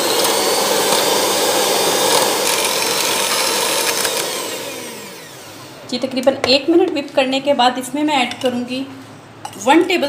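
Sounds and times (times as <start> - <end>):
electric hand mixer whining: 0.0 - 5.8.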